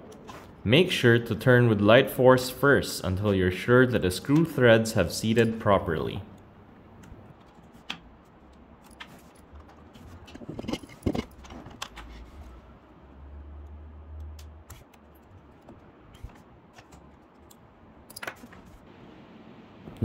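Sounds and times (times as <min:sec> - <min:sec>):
hand handling noise: 0:06.8 - 0:12.8, 0:14.2 - 0:18.9.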